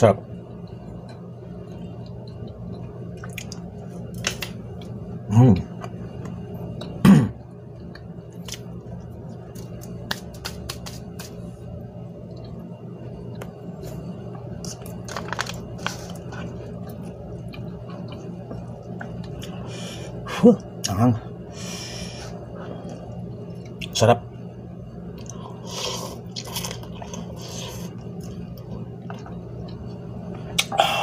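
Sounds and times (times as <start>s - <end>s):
steady low hum: 0.0s - 31.0s
person chewing: 1.0s - 3.7s, 13.8s - 19.7s, 25.2s - 31.0s.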